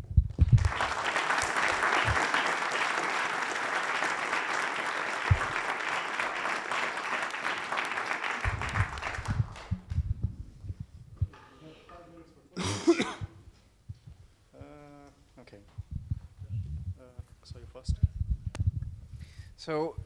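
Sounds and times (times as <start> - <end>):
low thumps: 0.0 - 0.7, 5.3 - 5.6, 8.4 - 11.4, 15.7 - 17.0
audience applauding: 0.4 - 10.0.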